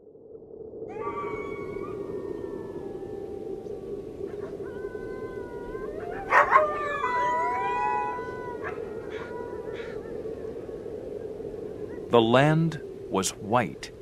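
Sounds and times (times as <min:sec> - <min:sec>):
steady background hiss: 0:00.3 - 0:14.0
wolves howling: 0:00.9 - 0:11.1.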